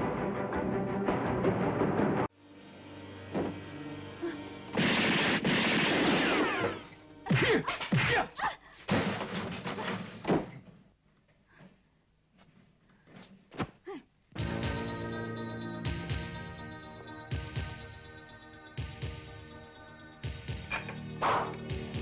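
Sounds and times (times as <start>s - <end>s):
background music: 0.0s - 8.2s, 14.4s - 22.0s
sharp hits and blows: 4.7s - 8.2s.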